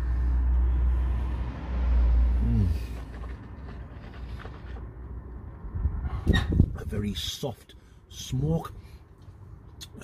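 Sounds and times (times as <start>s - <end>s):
vehicle passing rumble: 0.0s - 7.0s.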